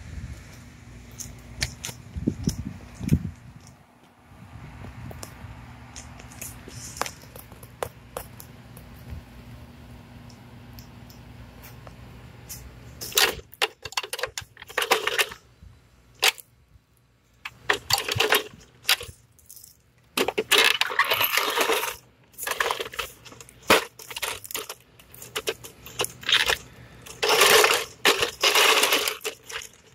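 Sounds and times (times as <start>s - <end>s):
plastic rubbing and scraping: 12.5s - 15.4s, 17.4s - 19.2s, 20.1s - 29.9s.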